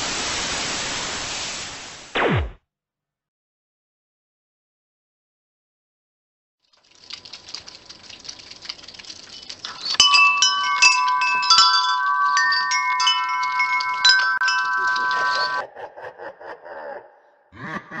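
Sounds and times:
metal wind chime ringing: 0:09.7 - 0:15.6.

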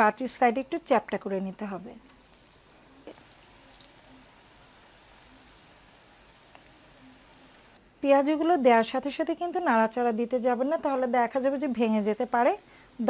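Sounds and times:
fritters sizzling in oil: 0:00.0 - 0:07.9
oil popping: 0:02.1 - 0:07.8.

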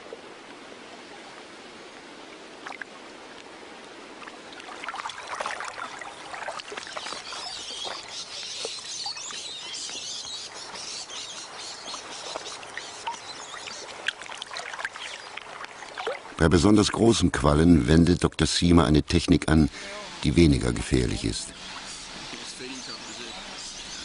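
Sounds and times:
water splashing and sloshing: 0:00.0 - 0:17.9
faint water hiss: 0:00.0 - 0:24.0.

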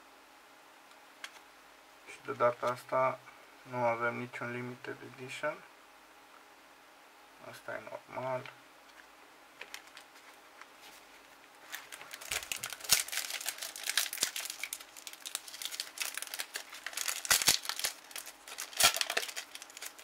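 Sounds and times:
foil pack crinkling and tearing: 0:09.6 - 0:10.1, 0:11.6 - 0:20.0.

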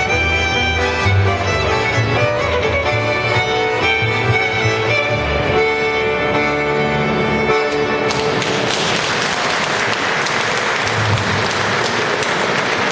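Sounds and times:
audience applause: 0:08.1 - 0:12.9.

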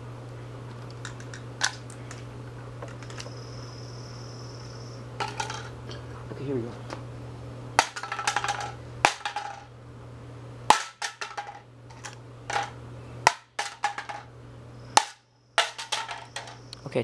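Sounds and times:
clatter of loose pieces: 0:02.8 - 0:03.3, 0:05.2 - 0:05.7, 0:07.8 - 0:09.7, 0:10.7 - 0:14.3, 0:15.0 - 0:16.6.

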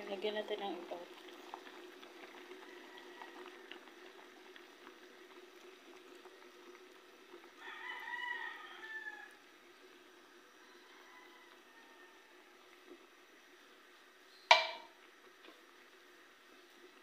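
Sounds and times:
soup bubbling in pot: 0:00.0 - 0:17.0
rooster crowing: 0:02.5 - 0:03.7, 0:07.6 - 0:09.4, 0:10.6 - 0:12.6.

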